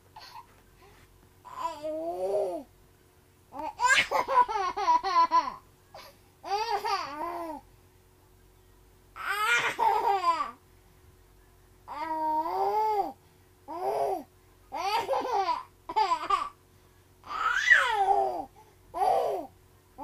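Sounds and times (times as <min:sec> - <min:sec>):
baby laughing: 0:03.6 - 0:07.4, 0:09.2 - 0:10.6, 0:14.8 - 0:16.5.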